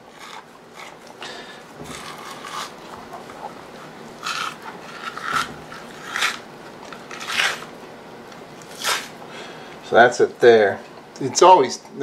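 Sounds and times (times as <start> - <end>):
membrane peeling off meat: 0.0 - 7.8, 8.6 - 9.2.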